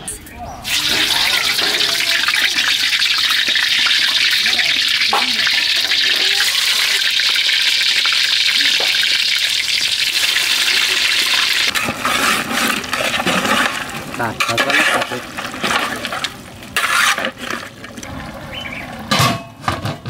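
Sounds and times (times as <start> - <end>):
eggs sizzling in hot oil: 0.6 - 18.9
spatula stirring curry in a pot: 11.7 - 18.0.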